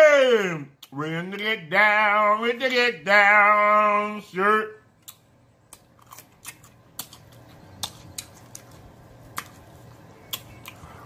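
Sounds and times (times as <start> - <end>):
wet mouth smacking: 5.0 - 9.6.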